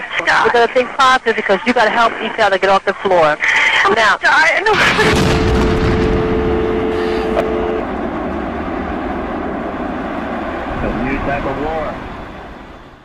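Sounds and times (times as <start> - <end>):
building collapse rumbling roar: 4.7 - 13.0
two steady tones: 5.3 - 8.8.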